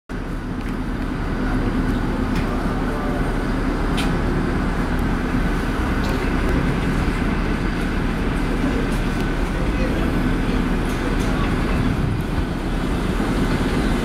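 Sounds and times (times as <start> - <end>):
subway train rumbling on rails: 0.1 - 14.0.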